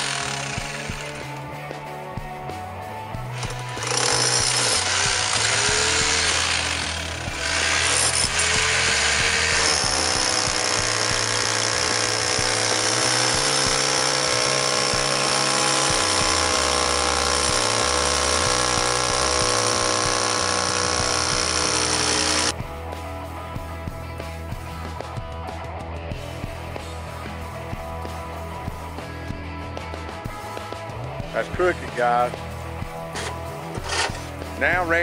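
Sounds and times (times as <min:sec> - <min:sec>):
rotary hammer drill boring brick: 0:00.0 - 0:01.4, 0:03.4 - 0:22.5, 0:33.1 - 0:34.3.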